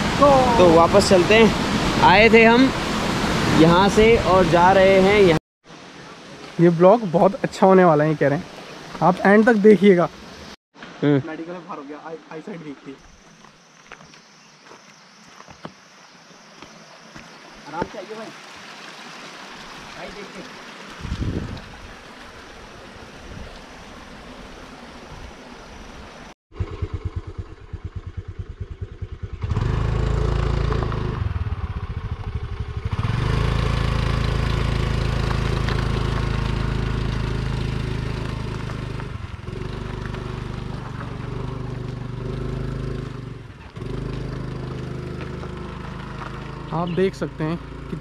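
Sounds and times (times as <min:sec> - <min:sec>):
stream water rushing: 0:00.0 - 0:13.5, 0:15.7 - 0:26.4, 0:32.9 - 0:48.0
scooter engine labouring uphill: 0:26.5 - 0:48.0.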